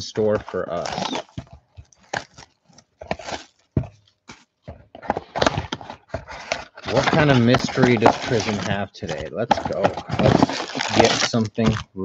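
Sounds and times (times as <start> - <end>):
card pack wrapper crinkling: 0.0 - 12.0.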